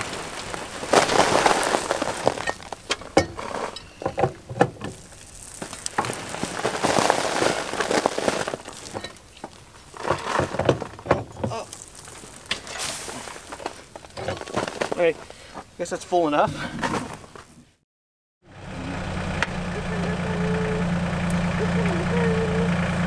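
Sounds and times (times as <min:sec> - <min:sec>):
soil pouring into metal bucket: 0:00.0 - 0:03.8, 0:04.8 - 0:10.6, 0:11.5 - 0:15.0.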